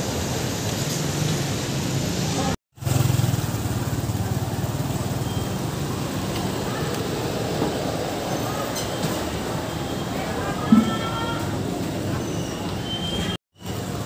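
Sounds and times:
street noise: 0.0 - 14.0
vehicle engine humming: 2.8 - 10.0.

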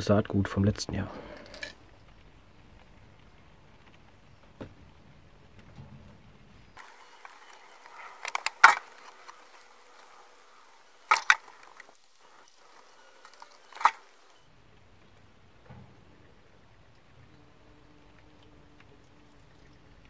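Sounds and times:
small hard objects clicking: 6.8 - 14.4.

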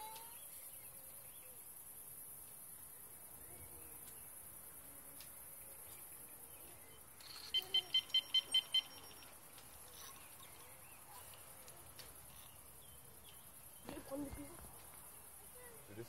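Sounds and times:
bite alarm beeping: 7.5 - 9.3.

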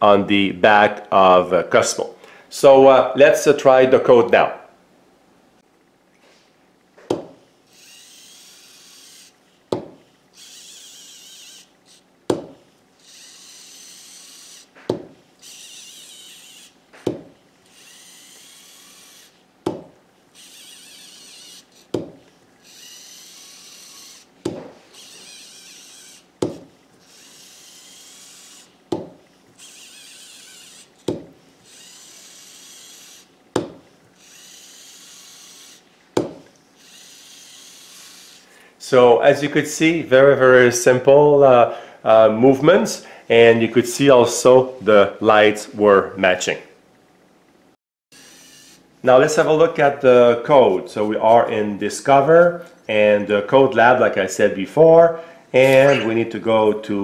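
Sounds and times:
small robot motors whirring: 7.7 - 19.4, 20.3 - 38.6, 48.1 - 49.5, 55.6 - 56.1.

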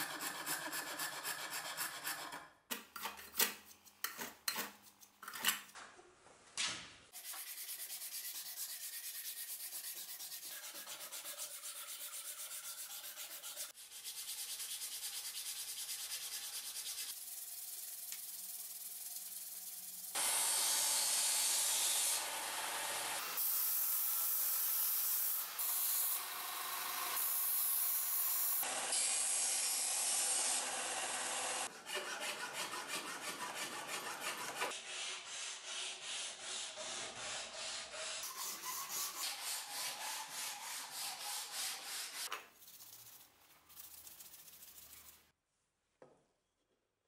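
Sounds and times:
hand sanding strokes: 0.0 - 2.4, 7.1 - 20.2, 31.6 - 45.3.

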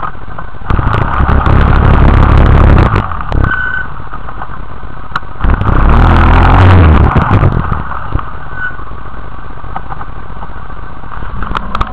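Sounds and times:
quad bike engine revving and idling: 0.7 - 3.5, 5.4 - 7.9.

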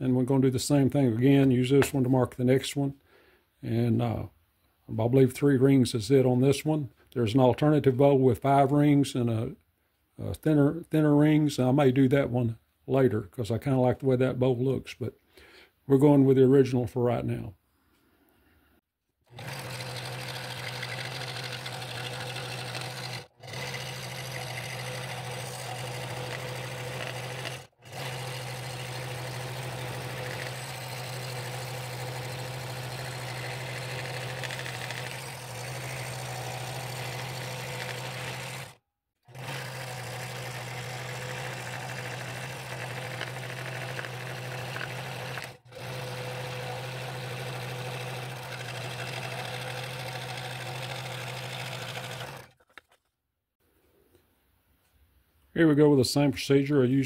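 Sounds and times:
scroll saw hum: 19.3 - 53.0.

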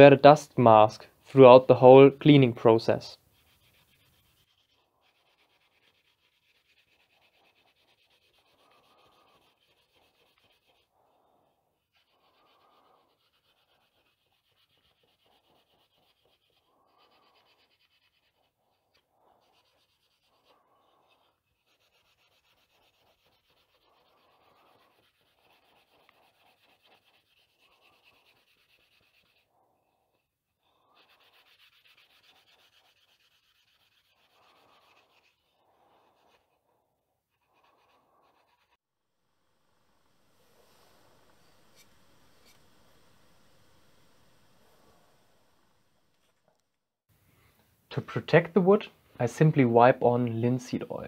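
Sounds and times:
steel wool rubbing wood: 2.2 - 29.6, 30.7 - 36.7, 39.7 - 46.4.

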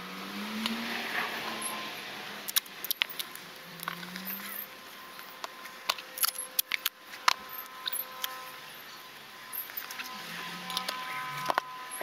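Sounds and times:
duct tape tearing and crackling: 2.4 - 8.4.

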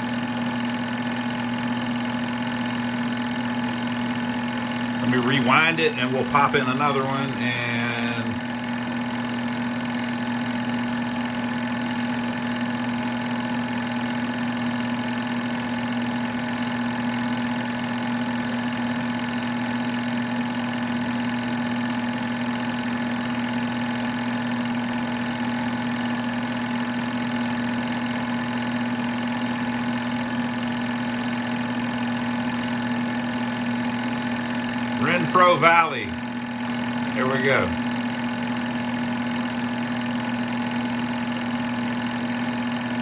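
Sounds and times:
film projector whirring: 0.0 - 43.0.

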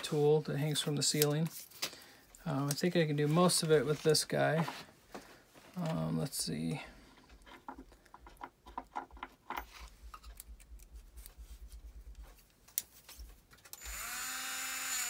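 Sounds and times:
drill motor whine: 13.8 - 15.0.

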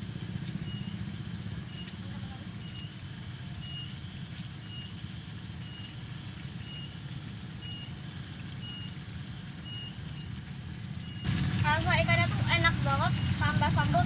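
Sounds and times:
steady low rumble: 10.4 - 14.0.

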